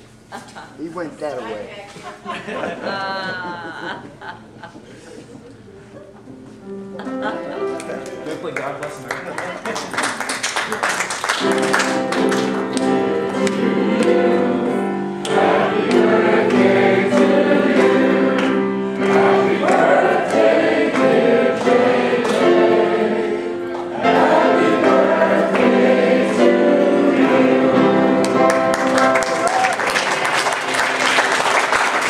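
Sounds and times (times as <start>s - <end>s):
congregation singing a hymn: 11.4s - 32.0s.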